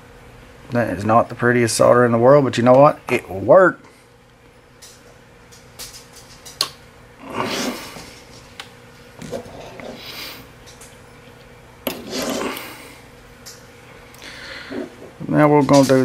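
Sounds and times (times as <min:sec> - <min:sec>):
rustling and scraping: 0:07.4 - 0:12.8, 0:14.6 - 0:16.0.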